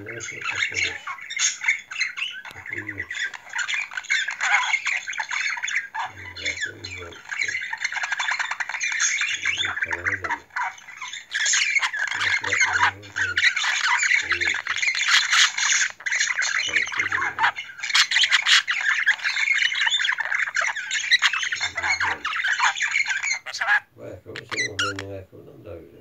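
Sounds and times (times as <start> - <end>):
budgerigar chattering and warbling: 0.0 - 25.2.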